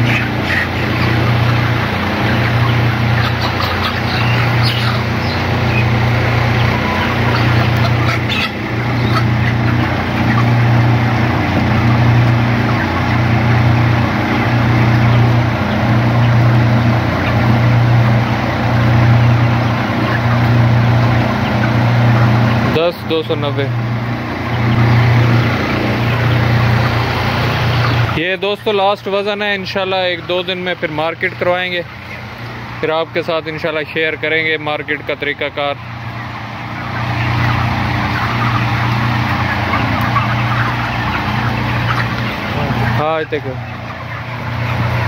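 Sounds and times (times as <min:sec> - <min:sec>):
low throbbing machine hum: 0:00.0 - 0:22.8, 0:23.6 - 0:28.2
flock of chickens clucking: 0:00.0 - 0:45.0.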